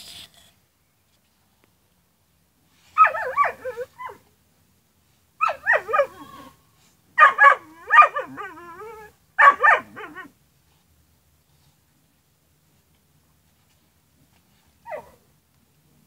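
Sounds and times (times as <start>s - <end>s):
dog whining and yelping: 2.8s - 4.3s, 5.4s - 6.5s, 7.2s - 10.3s, 14.9s - 15.2s.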